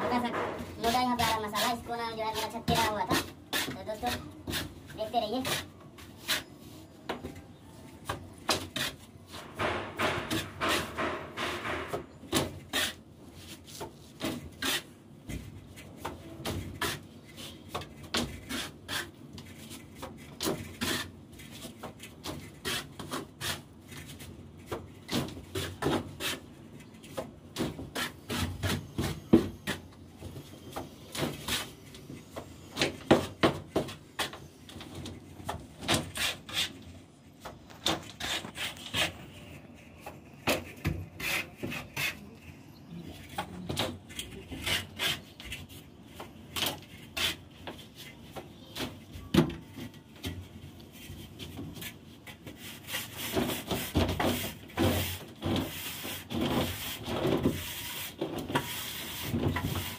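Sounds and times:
sharp knocks: 9.5 - 12.5
trowel scraping mortar: 38.0 - 42.6.

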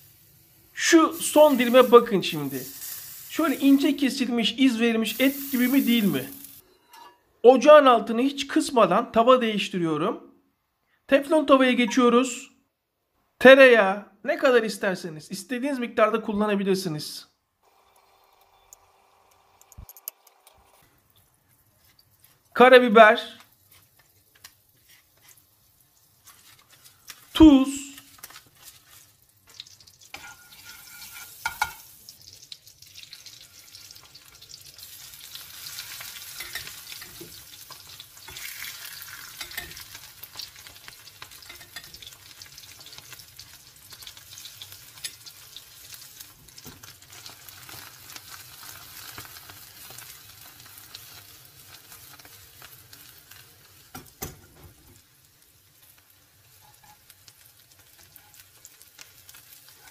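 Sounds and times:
mushrooms sizzling in a pan: 0.0 - 6.6, 20.9 - 59.9.

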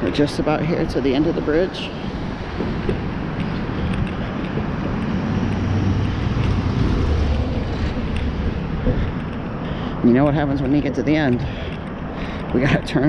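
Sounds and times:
road traffic noise: 0.0 - 13.0
wind on microphone: 0.0 - 13.0
deep rumble: 2.0 - 11.6.

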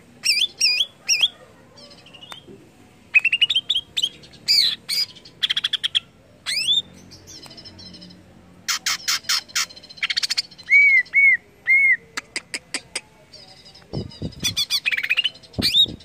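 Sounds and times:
bird singing chirps and trills: 0.2 - 2.5, 3.1 - 12.0, 13.3 - 16.0.

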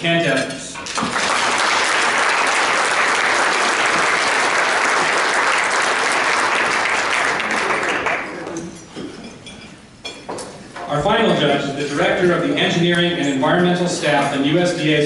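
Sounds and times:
audience applauding: 0.9 - 8.5.

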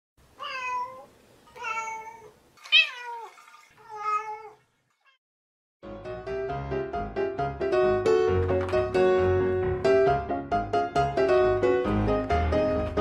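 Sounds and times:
cat meowing: 0.4 - 5.2
piano music: 5.8 - 13.0.

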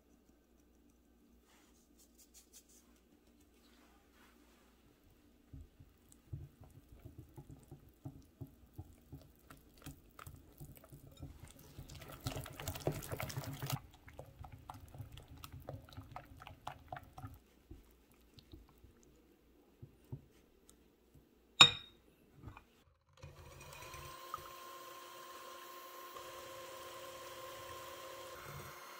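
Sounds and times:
electric hand mixer running: 23.2 - 28.9.

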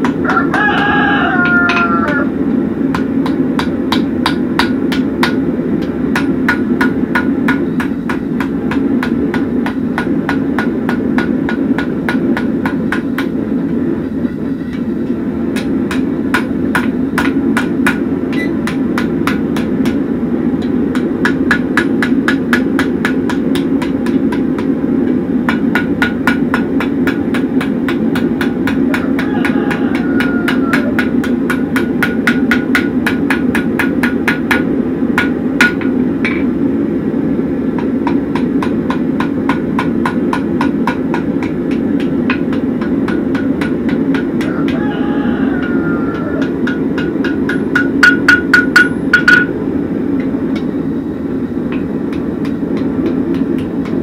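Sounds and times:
hammer striking steel on anvil: 0.0 - 2.3, 2.9 - 13.8, 14.7 - 36.6, 37.7 - 49.6, 51.7 - 54.0
low rushing noise: 0.0 - 54.0.

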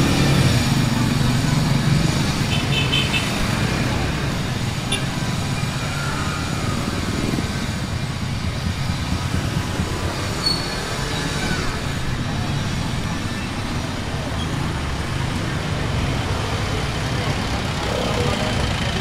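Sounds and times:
vehicle engines rumbling: 0.0 - 19.0
brief high squeak: 10.4 - 10.9.

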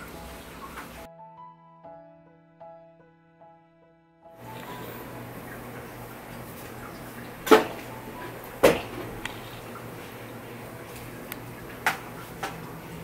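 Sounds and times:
low steady room hum: 4.4 - 13.0.

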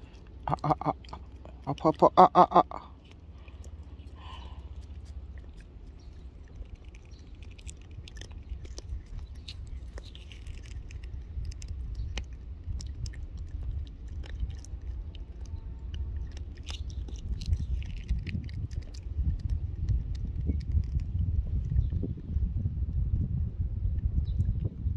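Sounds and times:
low rumble: 0.0 - 24.9
cat licking paste: 2.8 - 21.2.

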